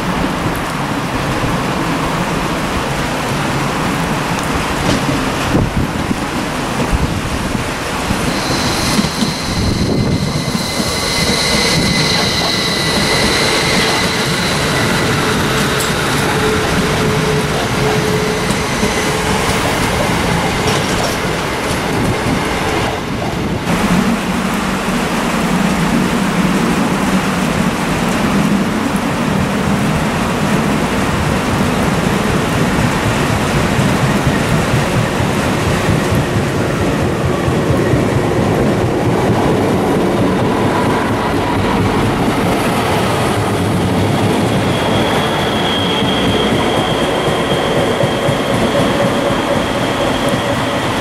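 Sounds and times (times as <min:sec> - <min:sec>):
rain: 0:00.0 - 0:11.4, 0:12.8 - 0:45.4
train rumble: 0:00.0 - 0:51.0
train wheels squealing: 0:08.0 - 0:23.0, 0:39.6 - 0:51.0.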